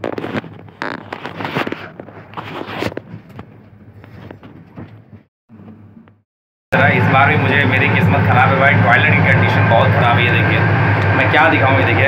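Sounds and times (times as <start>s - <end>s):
rustling and knocks of handling: 0.0s - 5.8s
steady low hum: 6.8s - 12.0s.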